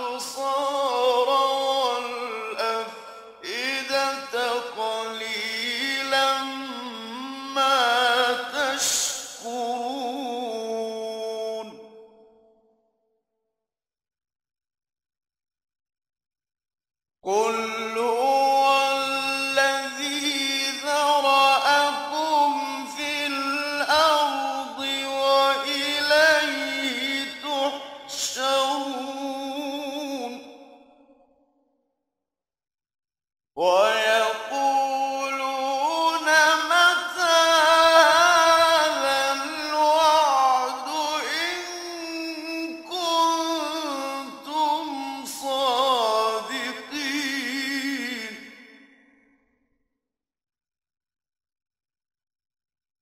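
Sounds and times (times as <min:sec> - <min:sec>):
man chanting melodically: 0:00.0 - 0:12.2, 0:17.3 - 0:30.8, 0:33.6 - 0:48.9.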